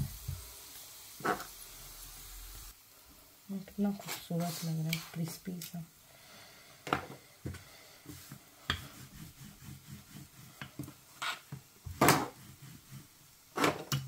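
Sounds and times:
rolling pin set on countertop: 8.1 - 14.0
rolling pin thudding on dough: 8.1 - 14.0.

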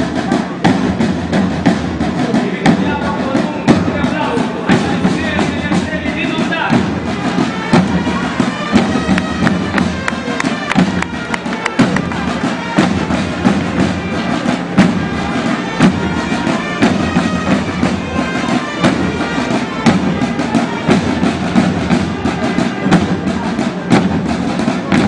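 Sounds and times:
drum beats: 0.0 - 25.0
bagpipes playing over drone: 7.1 - 23.6.

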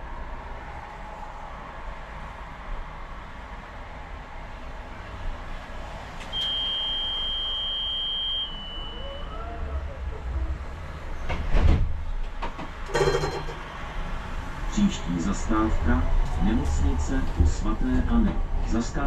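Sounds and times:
tram rumbling: 0.0 - 19.0
tram door warning beep: 6.3 - 9.3, 12.9 - 13.6.

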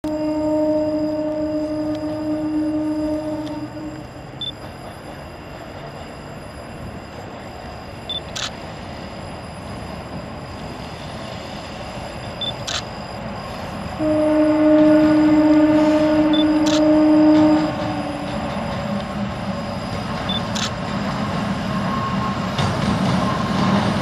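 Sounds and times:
locomotive horn: 0.0 - 4.4, 14.0 - 19.1
diesel locomotive rumble: 0.0 - 24.0.

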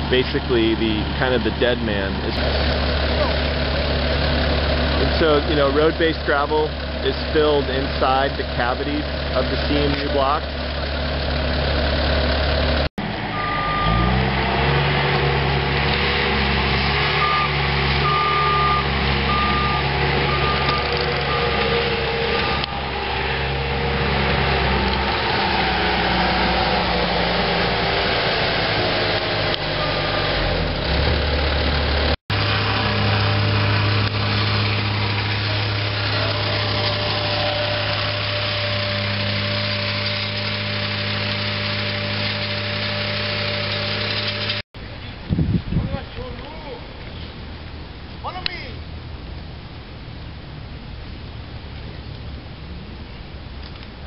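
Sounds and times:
loader engine working: 0.0 - 45.1
steady engine hum: 0.0 - 45.6
backup alarm beeping: 13.3 - 14.2, 17.2 - 22.8.

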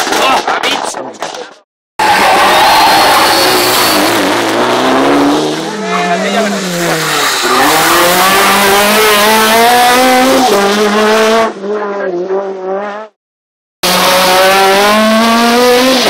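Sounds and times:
rally car engine at full throttle: 2.0 - 13.2, 13.8 - 16.0.

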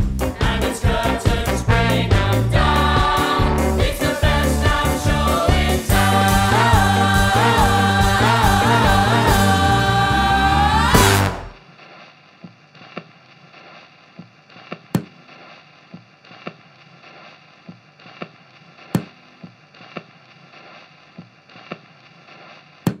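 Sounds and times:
faint steady hiss: 11.6 - 23.0.

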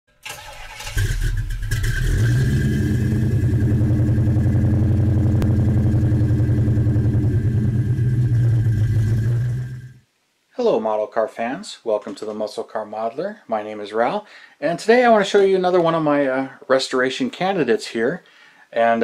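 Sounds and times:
car engine idling: 2.5 - 10.0.

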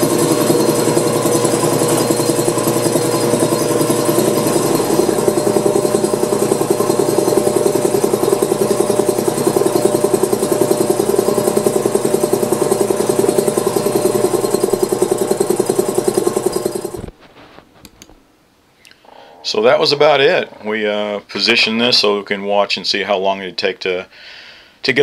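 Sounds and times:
air compressor pump pulsing: 0.0 - 17.2.

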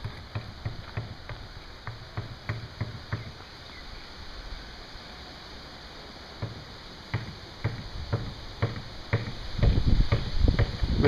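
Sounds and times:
footsteps on gravel: 0.0 - 1.6.

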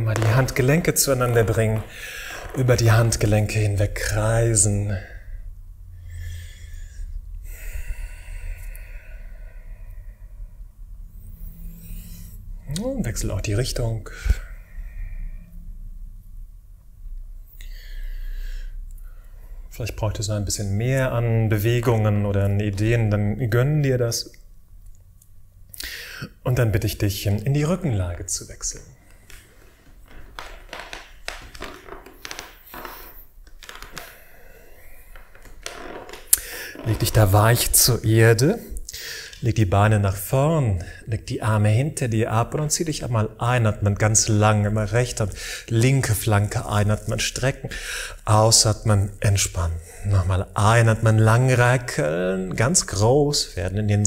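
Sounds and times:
clothing rustling: 0.0 - 3.6, 29.0 - 37.7
man breathing: 1.8 - 2.6, 5.0 - 12.6, 14.0 - 15.8, 17.5 - 19.7, 25.7 - 26.4, 32.2 - 37.0, 38.7 - 39.4, 45.3 - 45.7, 47.7 - 48.3.

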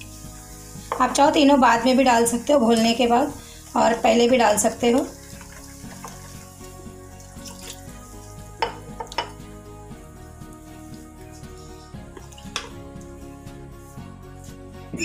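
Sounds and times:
spatula stirring wet batter: 0.0 - 9.5, 10.3 - 14.6
spatula tapping steel bowl: 0.9 - 1.2, 8.6 - 9.4.

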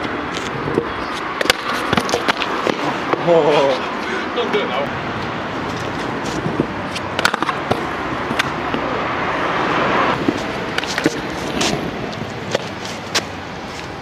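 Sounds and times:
scooter wheels rumbling on paving: 0.0 - 4.1, 10.1 - 14.0
scooter deck clacking on ground: 7.2 - 8.8.

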